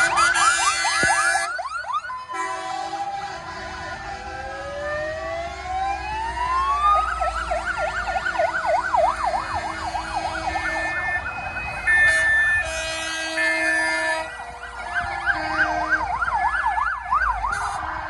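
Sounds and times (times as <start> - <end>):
fire engine sirens: 0.0 - 18.0
steady multi-tone signal: 10.1 - 16.0.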